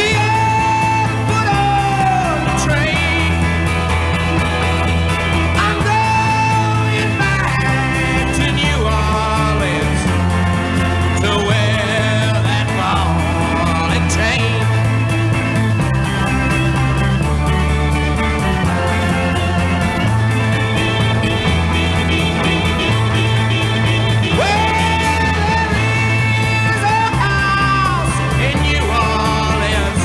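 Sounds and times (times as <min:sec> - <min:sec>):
man singing: 0:00.0 - 0:04.0, 0:05.4 - 0:15.0, 0:24.2 - 0:30.0
rock band playing: 0:00.0 - 0:30.0.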